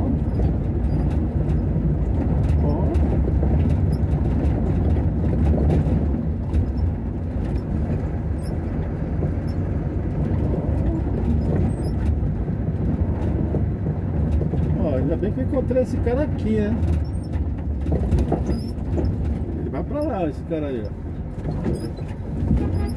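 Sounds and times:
engine and tyre rumble: 0.0s - 22.9s
faint rattles: 0.0s - 22.9s.

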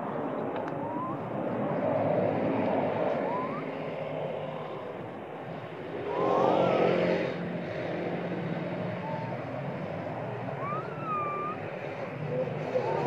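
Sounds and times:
motor traffic noise: 0.0s - 13.0s
rising whistle-like calls: 0.8s - 1.2s, 3.0s - 4.1s, 6.0s - 7.4s, 9.0s - 9.6s, 10.5s - 13.0s.

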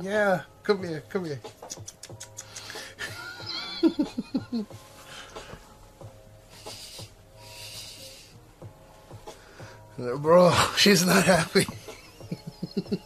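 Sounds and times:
person laughing: 3.0s - 4.7s, 11.6s - 13.0s.

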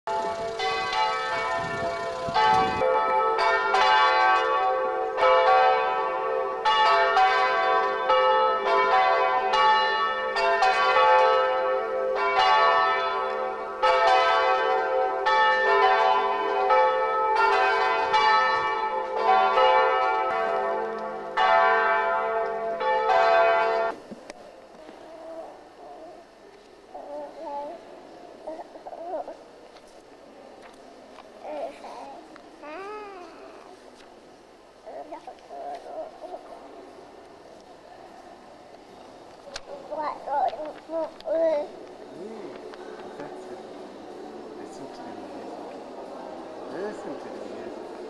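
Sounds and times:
church bells ringing: 0.1s - 24.0s, 43.3s - 48.0s.

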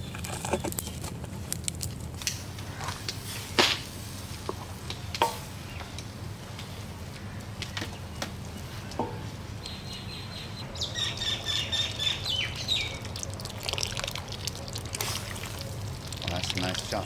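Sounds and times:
bird chirping: 9.6s - 13.1s
liquid pouring into curry: 13.0s - 16.6s.

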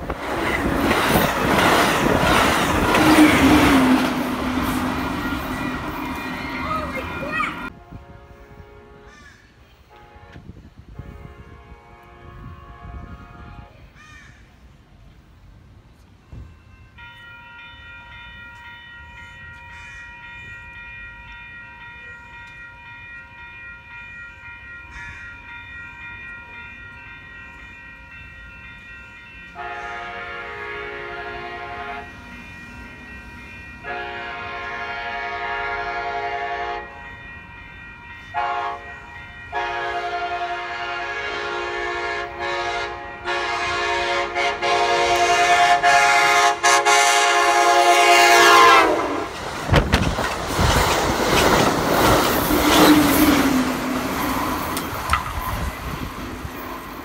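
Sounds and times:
train horn blasts: 1.6s - 14.0s, 29.3s - 49.4s.

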